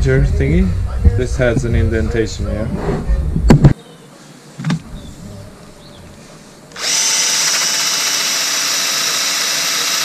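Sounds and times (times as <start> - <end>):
drill with wire brush whining: 6.7 - 10.0.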